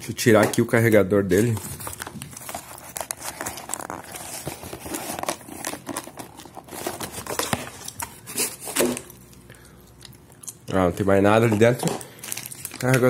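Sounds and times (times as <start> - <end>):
cardboard packaging crinkling: 1.3 - 9.4, 11.0 - 13.0.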